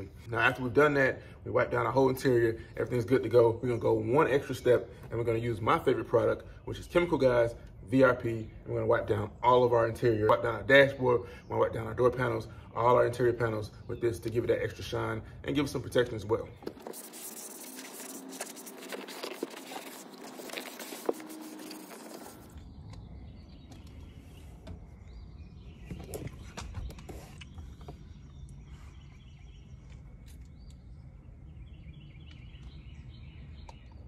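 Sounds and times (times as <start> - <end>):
pad rubbing on plastic: 16.7 - 22.6.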